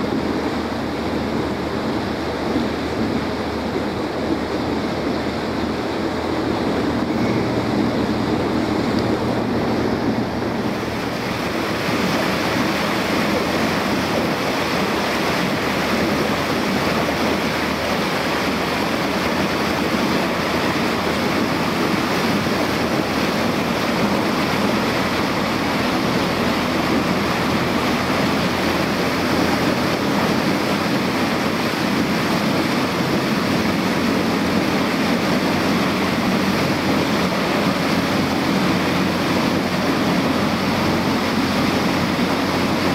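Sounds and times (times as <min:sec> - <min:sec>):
boat engine running: 0:00.0 - 0:42.9
water rushing along hull: 0:00.0 - 0:42.9
wind buffeting microphone: 0:00.0 - 0:42.9.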